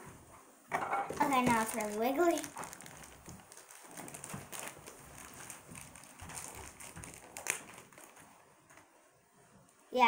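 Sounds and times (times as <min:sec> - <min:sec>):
wrapping rustling: 0:01.1 - 0:09.1.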